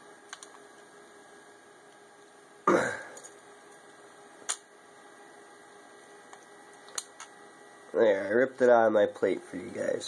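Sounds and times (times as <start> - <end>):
electrical hum: 0.0 - 10.0
low grunt-like sound: 2.7 - 3.2.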